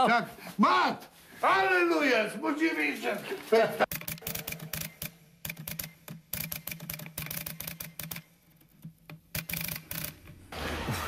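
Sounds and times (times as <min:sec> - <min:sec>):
typewriter keys clicking: 0:03.9 - 0:10.4.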